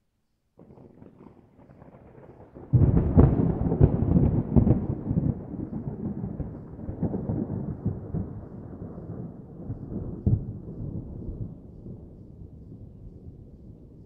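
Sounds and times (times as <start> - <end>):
thunder rumbling: 0.6 - 14.0
sharp thunder crack: 1.9 - 11.6.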